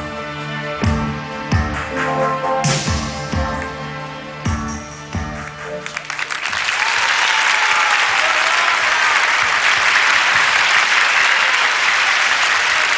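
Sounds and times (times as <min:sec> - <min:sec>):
audience applauding: 0:05.8 - 0:12.9.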